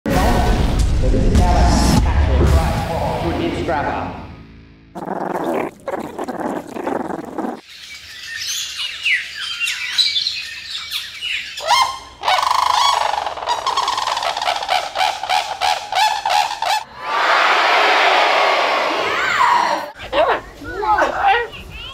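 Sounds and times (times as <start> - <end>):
high chirps and squeaks: 5.0 - 7.6.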